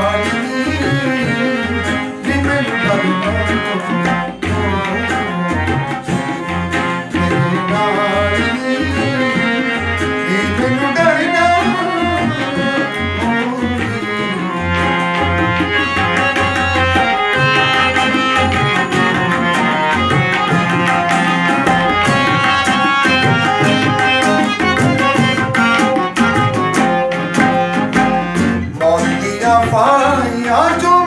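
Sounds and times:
acoustic guitar strumming: 0.0s - 31.0s
harmonium melody: 0.0s - 31.0s
tabla strokes: 0.0s - 31.0s.

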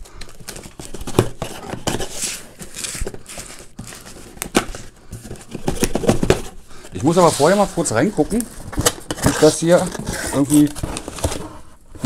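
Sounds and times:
cardboard scraping and rustling: 0.3s - 12.0s.

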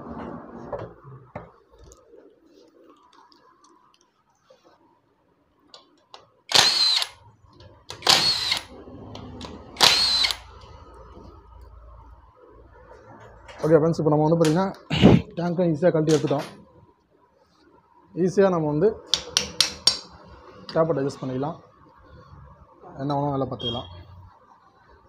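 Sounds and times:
power driver whining: 6.5s - 7.2s, 7.9s - 8.7s, 9.4s - 10.5s.

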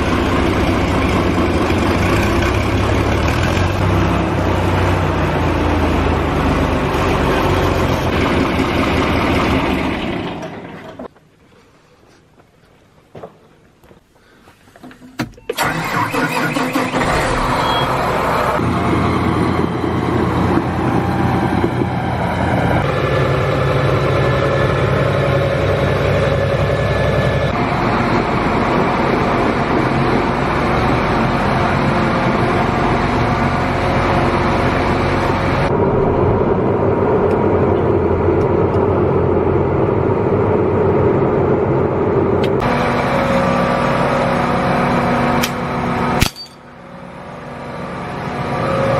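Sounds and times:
tractor diesel engine running: 0.0s - 11.1s, 15.2s - 48.9s.

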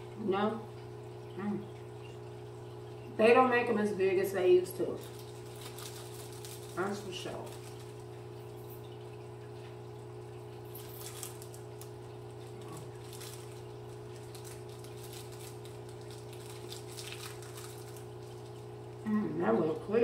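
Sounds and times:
plastic wrapper crinkling: 4.9s - 8.8s, 10.7s - 19.0s.

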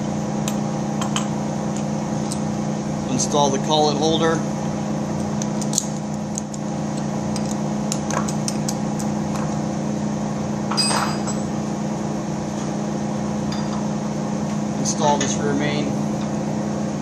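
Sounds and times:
machine hum: 0.0s - 17.0s
ringing metal clink: 10.7s - 11.4s.

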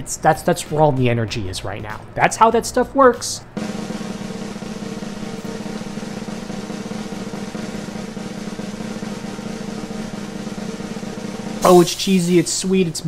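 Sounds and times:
snare drum roll: 3.6s - 12.5s.

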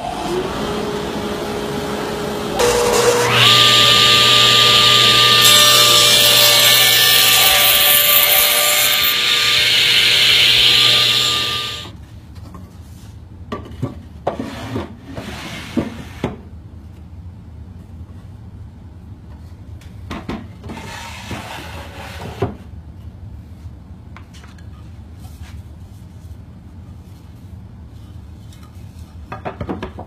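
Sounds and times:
power tool cutting wood: 0.0s - 11.9s.

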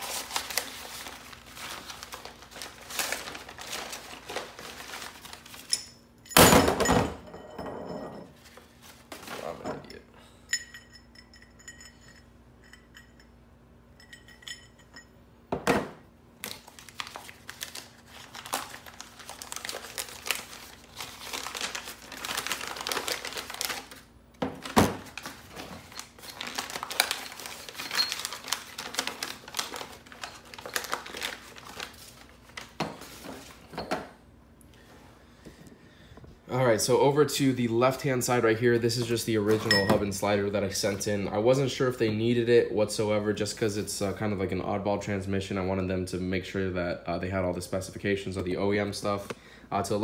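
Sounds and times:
paper crinkling and tearing: 0.0s - 5.7s, 16.4s - 33.6s.

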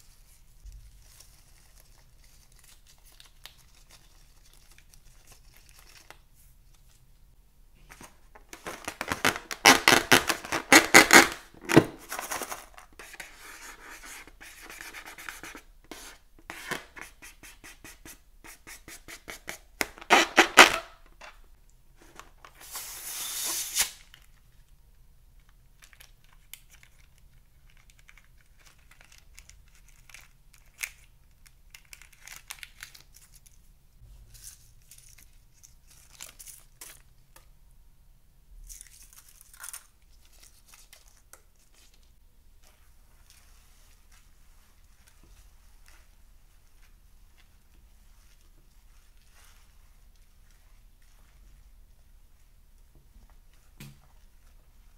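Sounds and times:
rubber tearing: 8.8s - 11.9s, 19.8s - 21.0s, 23.0s - 24.0s.

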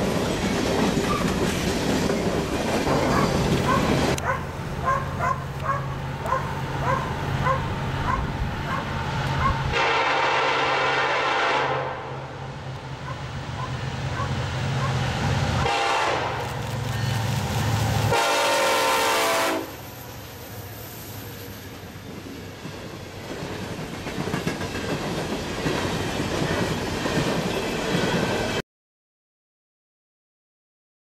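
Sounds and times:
train wheels clacking: 0.0s - 4.4s, 21.3s - 28.6s
locomotives running: 0.0s - 9.7s
train horn blasts: 9.6s - 12.4s, 15.6s - 16.6s, 17.9s - 19.8s.

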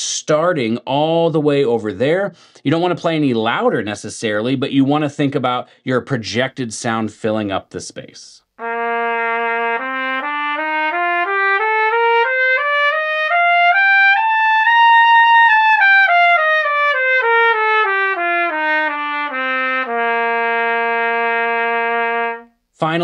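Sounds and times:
trumpet playing a scale: 8.6s - 22.6s.

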